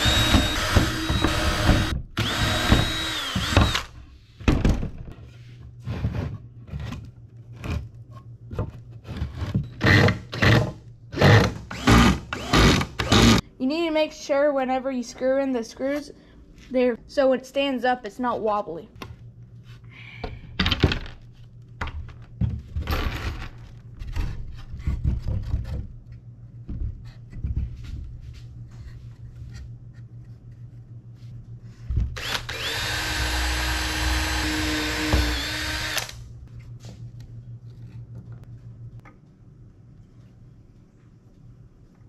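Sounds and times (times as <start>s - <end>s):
cordless drill driving a screw: 0.0s - 3.9s, 32.2s - 36.2s.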